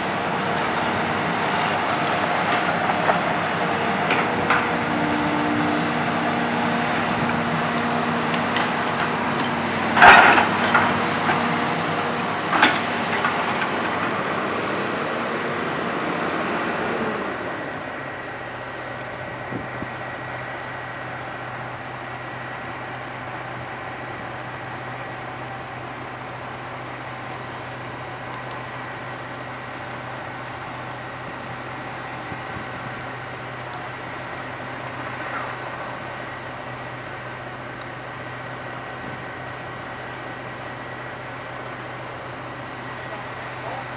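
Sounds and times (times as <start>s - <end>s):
excavator diesel engine idling: 0.0s - 43.9s.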